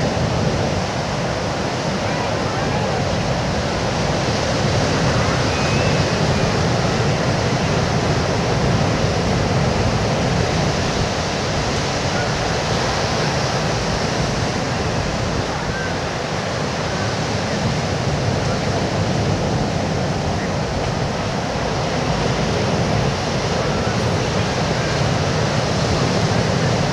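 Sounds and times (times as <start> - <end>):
surf breaking on a beach: 0.0 - 26.9.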